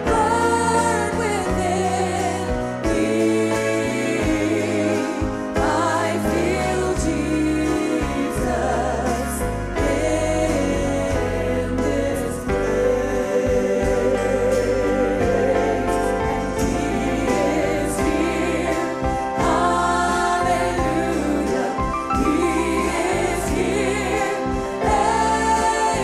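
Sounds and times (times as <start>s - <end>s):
woman singing into a microphone: 0.0s - 16.0s
backing choir singing: 0.0s - 26.0s
band playing: 0.0s - 26.0s.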